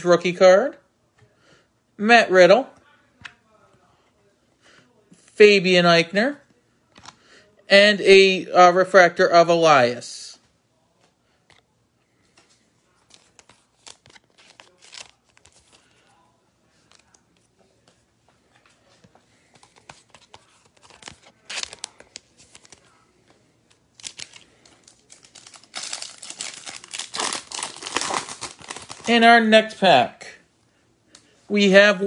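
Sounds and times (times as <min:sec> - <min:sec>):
foil wrapper tearing and crinkling: 0:13.1 - 0:15.7, 0:20.2 - 0:22.9, 0:24.0 - 0:29.1.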